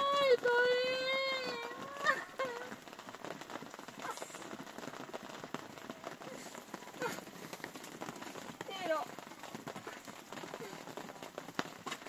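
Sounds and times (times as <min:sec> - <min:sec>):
rain on tarpaulin tent roof: 0:00.0 - 0:12.0.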